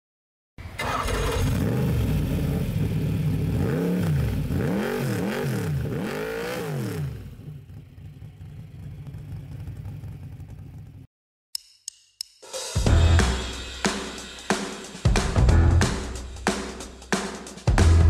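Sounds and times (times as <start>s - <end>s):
car engine revving and idling: 1.0s - 11.1s.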